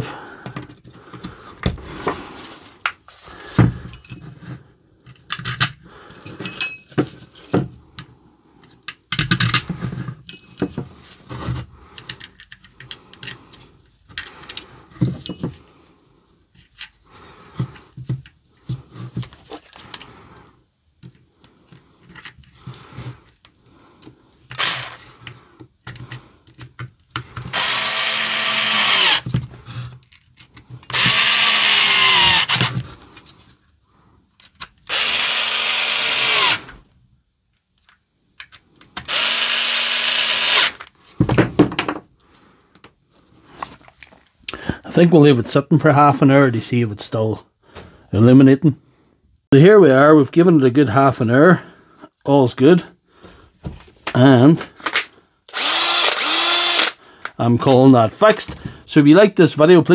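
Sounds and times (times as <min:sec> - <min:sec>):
power screwdriver running: 0:24.5 - 0:25.1, 0:27.5 - 0:29.3, 0:30.9 - 0:32.8, 0:34.9 - 0:36.7, 0:39.0 - 0:40.9, 0:55.5 - 0:57.0.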